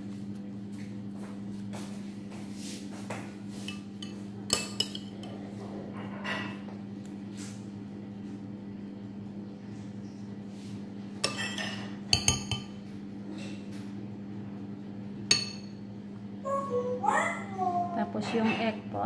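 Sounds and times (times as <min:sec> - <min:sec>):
steady low hum: 0:00.0 - 0:19.0
spoon clinking against bowl: 0:03.7 - 0:05.2, 0:11.2 - 0:12.8, 0:15.3 - 0:15.8.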